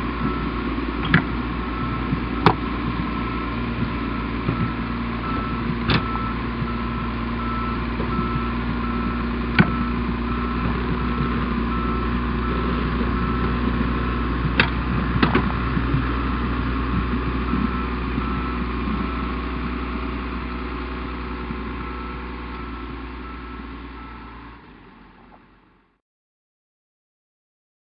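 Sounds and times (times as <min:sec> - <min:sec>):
diesel engine running: 0:00.0 - 0:26.0
reversing alarm beeping: 0:00.1 - 0:00.6, 0:01.6 - 0:25.6.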